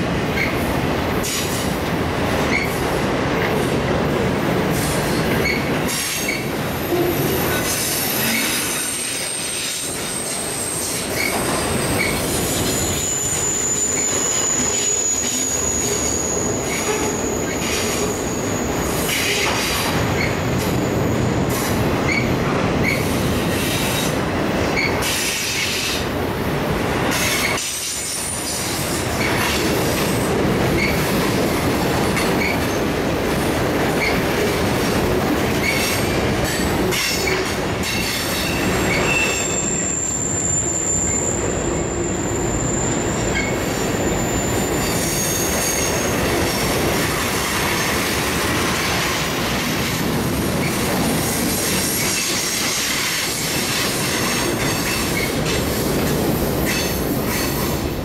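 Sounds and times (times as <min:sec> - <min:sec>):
freight train wheels rumbling: 0:00.0 - 0:58.0
high wheel squeal: 0:05.4 - 0:21.2, 0:38.2 - 0:46.6.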